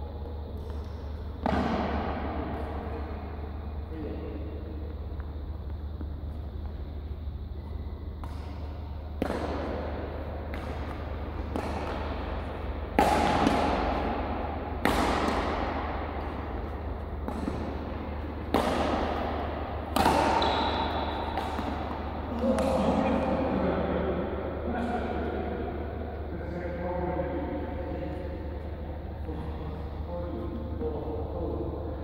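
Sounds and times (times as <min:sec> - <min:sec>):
low steady hum: 0:00.0 - 0:32.0
rackets hitting shuttlecock: 0:00.6 - 0:03.2, 0:08.1 - 0:23.6
voices: 0:20.0 - 0:25.6.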